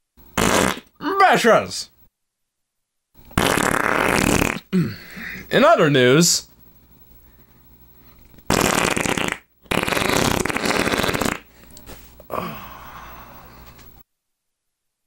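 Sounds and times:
farts: 0.4s - 0.9s, 3.4s - 4.7s, 8.5s - 11.5s.

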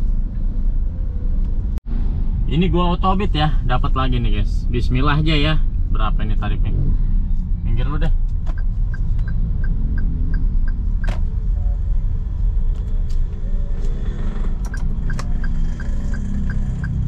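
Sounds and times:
engine and road noise rumble: 0.0s - 17.0s
turn signal ticking: 8.2s - 11.4s, 12.7s - 17.0s.

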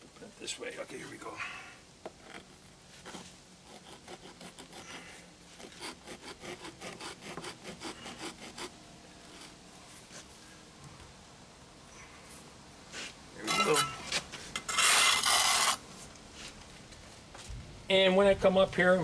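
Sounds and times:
stone scraping against mortar: 13.0s - 15.8s.

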